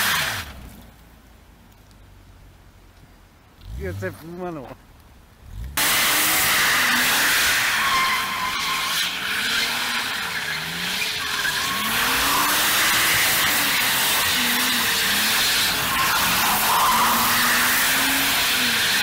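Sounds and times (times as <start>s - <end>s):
tyres sliding on wet tarmac: 0.0s - 19.0s
car engine revving: 5.4s - 19.0s.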